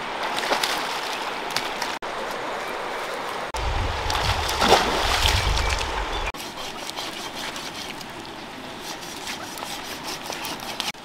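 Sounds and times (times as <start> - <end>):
wind rumbling on microphone: 3.5 - 6.3
water splash: 3.6 - 6.3.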